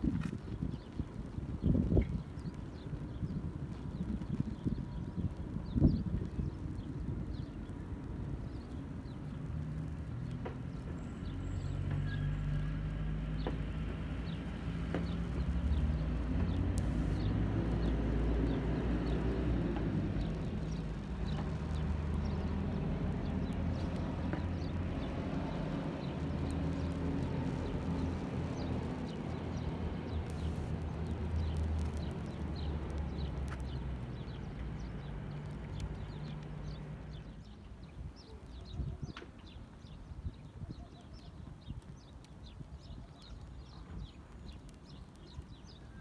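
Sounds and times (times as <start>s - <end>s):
burning matches crackling: 0.0s - 38.6s, 41.6s - 46.0s
low steady rumble: 16.0s - 37.3s.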